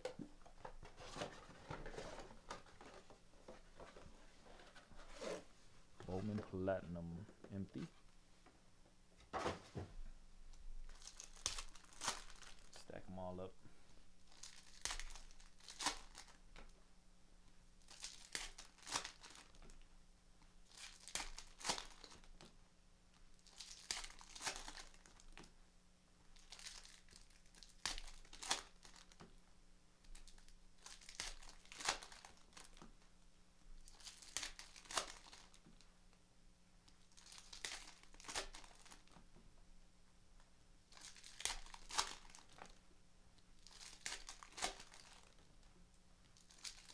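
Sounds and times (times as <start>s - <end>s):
foil wrappers crinkling: 10.9s - 12.9s, 14.3s - 16.4s, 17.8s - 19.8s, 20.7s - 22.4s, 23.4s - 25.5s, 26.4s - 29.2s, 30.1s - 32.8s, 33.8s - 35.6s, 37.0s - 39.2s, 40.9s - 42.8s, 43.6s - 45.5s, 46.3s - 46.9s.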